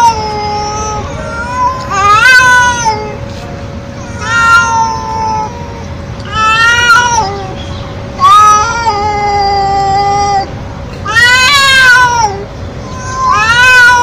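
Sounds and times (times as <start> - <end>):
cat meowing loudly: 0.0 - 3.2, 4.0 - 7.6, 8.2 - 14.0.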